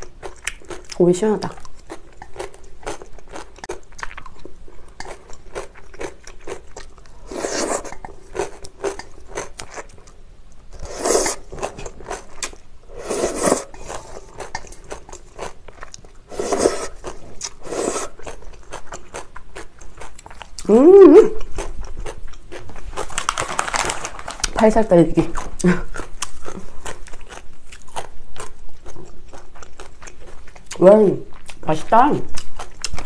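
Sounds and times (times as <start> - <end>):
wet chewing: 0.0 - 20.7, 25.2 - 33.0
loud slurps of noodles: 7.2 - 7.9, 10.8 - 11.4, 12.9 - 14.2, 16.3 - 17.0, 17.6 - 18.2.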